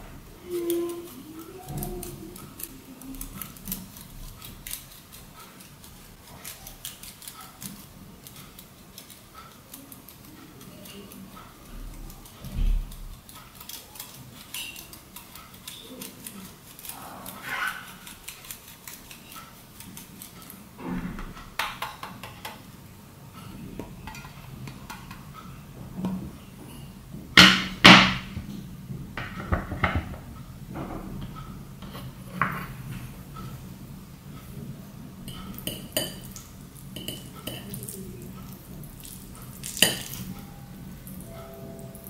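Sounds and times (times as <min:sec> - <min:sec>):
cheese grating on metal grater: 0:00.3 - 0:20.8
sharp knocks: 0:27.4 - 0:28.4.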